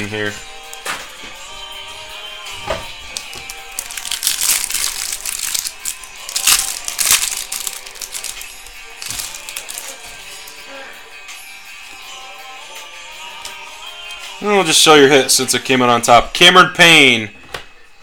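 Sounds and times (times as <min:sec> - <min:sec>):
background music: 0:00.0 - 0:18.0
card packaging crinkling: 0:03.1 - 0:10.6.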